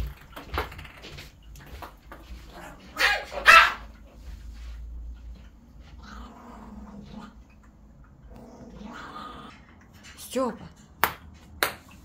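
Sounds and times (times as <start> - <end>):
cat growling: 6.0 - 7.4, 8.2 - 9.7.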